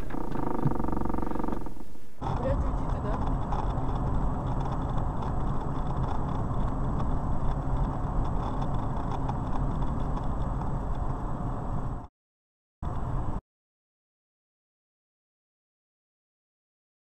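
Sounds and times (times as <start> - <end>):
car engine and tyre noise: 0.0 - 12.1, 12.8 - 13.4.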